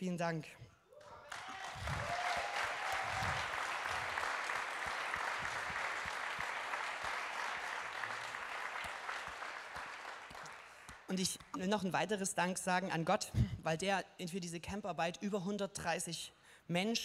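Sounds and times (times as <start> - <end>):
congregation applauding: 1.0 - 11.4.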